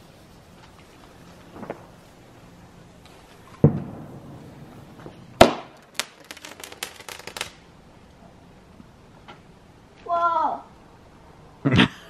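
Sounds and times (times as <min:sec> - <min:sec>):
firework crackling: 0:00.0 - 0:08.2
firework bangs: 0:00.7 - 0:07.7
firework thump: 0:01.4 - 0:02.0, 0:03.0 - 0:07.6.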